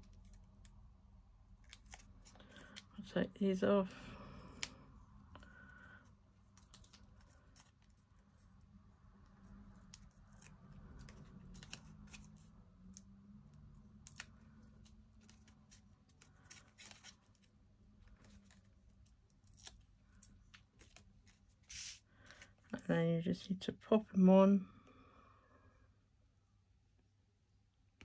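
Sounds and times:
paper rustling: 9.7s - 12.6s, 14.3s - 22.6s.

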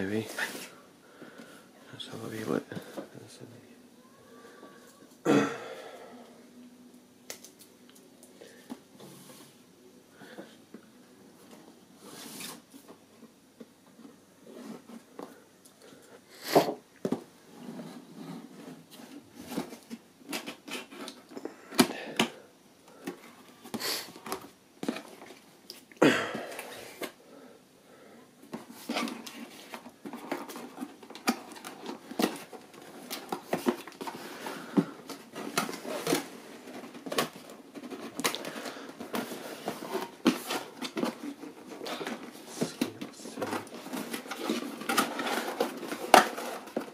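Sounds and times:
cardboard box rustling and scraping: 28.6s - 46.9s.

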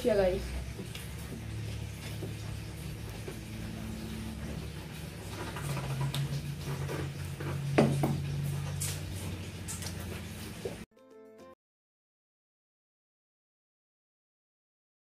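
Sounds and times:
low hum: 0.0s - 10.8s
chewing fried chicken: 0.4s - 10.8s.

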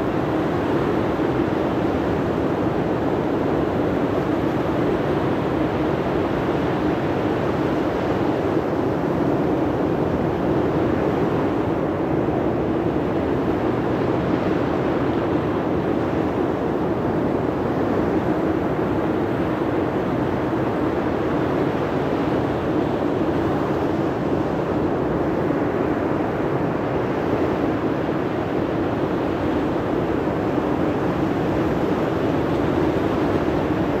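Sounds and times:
wind: 0.0s - 34.0s.

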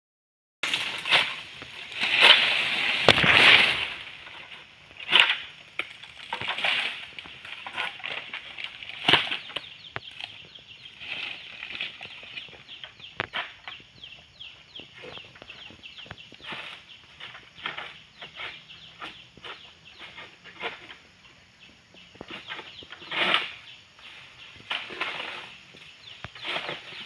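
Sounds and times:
palm fronds rustling and scraping: 0.6s - 13.9s, 14.8s - 21.4s, 22.2s - 27.0s.

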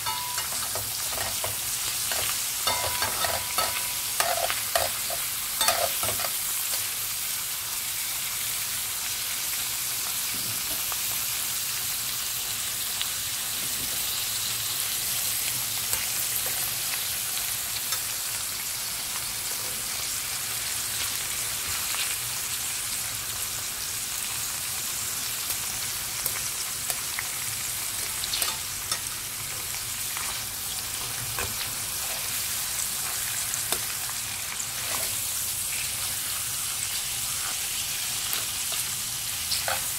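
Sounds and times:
metal tongs clicking on pan: 0.0s - 6.8s, 28.3s - 29.1s
meat sizzling in frying pan: 0.0s - 39.9s.

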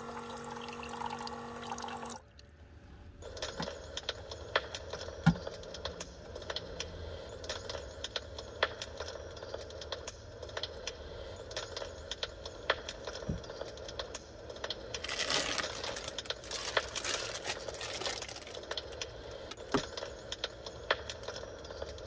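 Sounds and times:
low steady hum: 0.0s - 21.0s
plastic packet crinkling: 14.9s - 19.0s.

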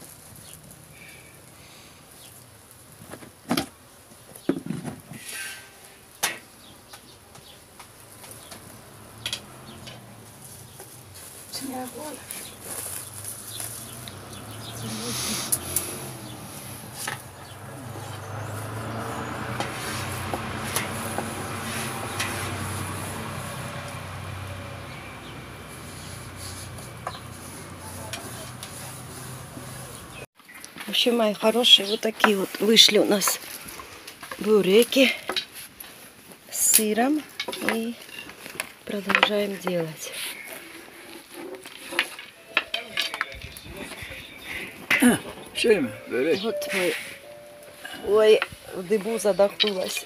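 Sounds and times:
vehicle engine hum: 7.8s - 30.3s
short rustle: 10.0s - 17.3s.

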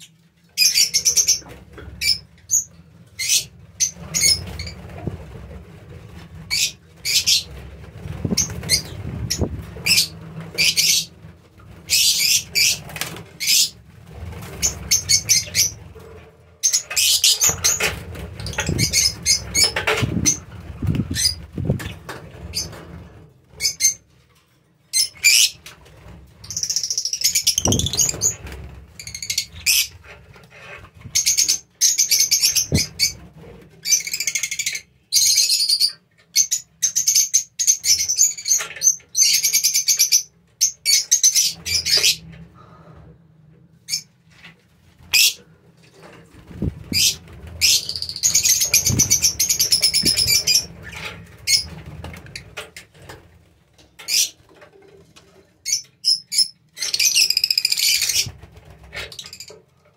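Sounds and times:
wings flapping: 3.2s - 24.0s, 25.3s - 31.5s, 44.9s - 53.5s, 56.8s - 59.6s.

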